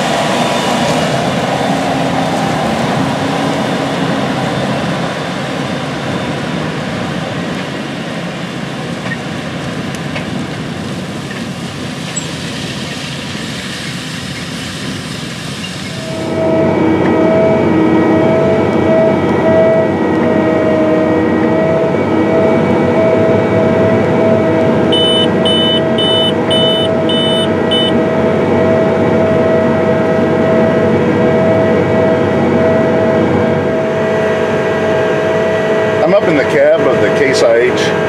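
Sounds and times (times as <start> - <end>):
tractor engine drone: 0.0 - 38.0
steady whine: 15.8 - 38.0
short electronic beeps: 24.9 - 28.0.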